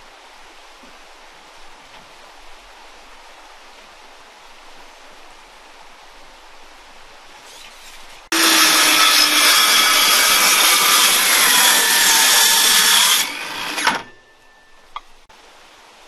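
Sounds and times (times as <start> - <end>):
power tool cutting wood: 7.5 - 14.3.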